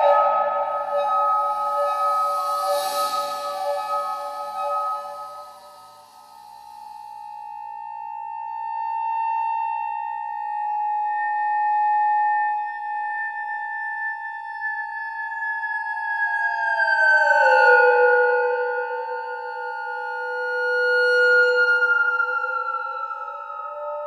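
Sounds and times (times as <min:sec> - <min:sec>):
electronic instruments holding tones: 0:00.0 - 0:06.8.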